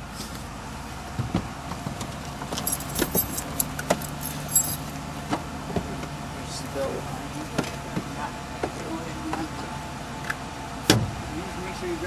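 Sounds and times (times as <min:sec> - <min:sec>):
metal jingling and clinking: 0:02.6 - 0:05.0.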